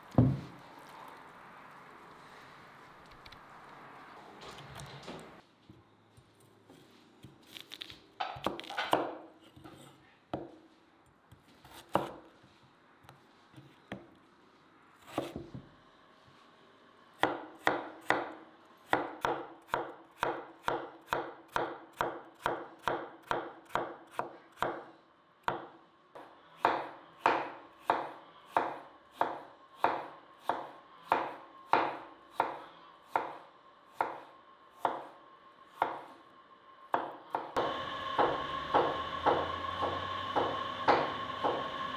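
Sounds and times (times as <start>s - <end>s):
knife chopping on wooden board: 8.2s - 10.5s, 11.6s - 12.2s, 15.1s - 15.6s, 25.5s - 33.4s, 34.0s - 34.2s, 35.8s - 36.1s, 38.2s - 41.7s.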